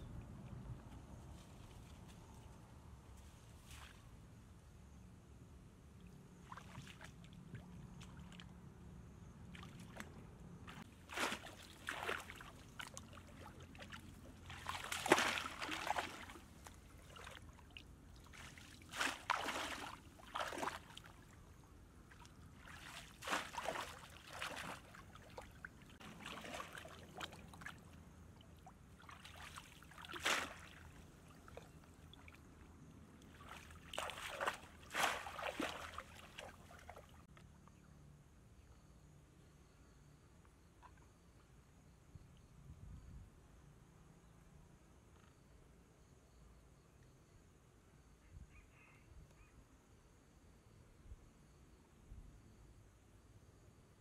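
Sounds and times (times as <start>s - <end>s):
splashing through muddy water: 6.4s - 8.5s, 9.5s - 32.4s, 33.2s - 37.3s.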